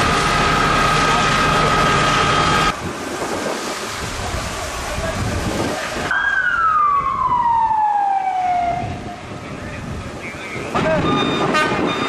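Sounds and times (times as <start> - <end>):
noisy background: 0.0 - 12.0
emergency vehicle siren: 6.1 - 9.4, 10.7 - 12.0.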